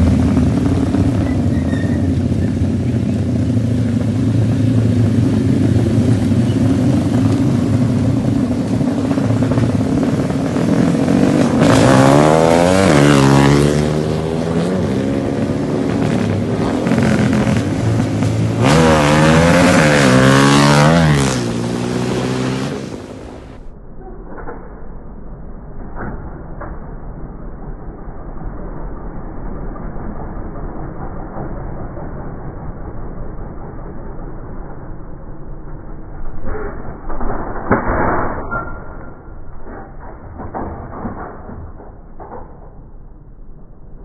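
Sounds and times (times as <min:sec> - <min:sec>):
motorcycle engines running: 0:00.0 - 0:23.7
motorcycle throttle revving: 0:04.7 - 0:23.3.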